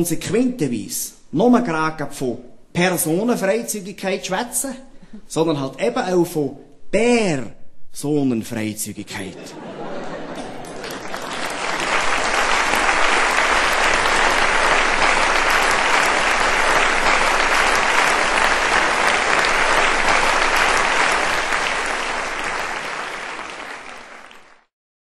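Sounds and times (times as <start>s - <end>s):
audience applauding: 9.9s - 24.7s.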